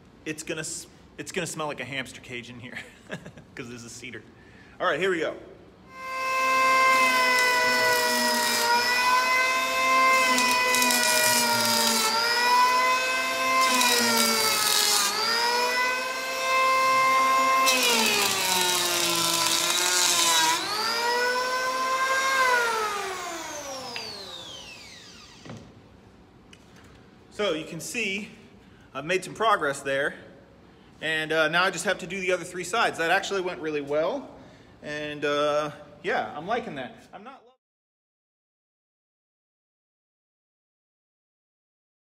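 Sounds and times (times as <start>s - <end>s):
power planer motor whine: 6.0s - 25.6s.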